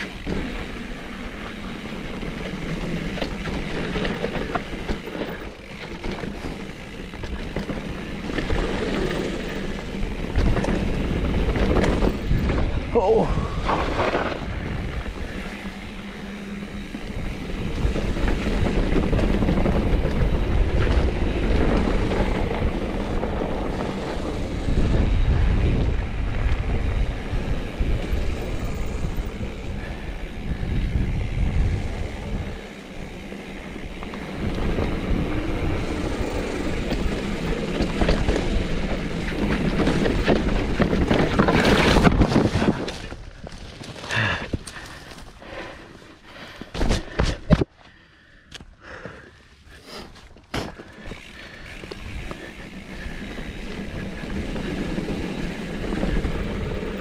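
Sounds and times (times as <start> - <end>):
bike rattling over bumps: 0.0 - 48.0, 48.9 - 57.0
tyres on dirt: 0.0 - 57.0
wind buffeting microphone: 1.5 - 43.5.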